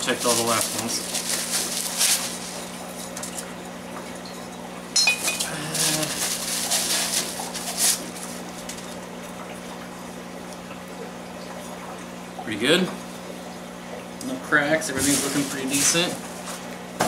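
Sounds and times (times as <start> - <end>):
bubble wrap crinkling: 0.0 - 3.3, 5.2 - 8.7, 15.0 - 16.2
ceramic stones clinking: 5.0 - 5.6.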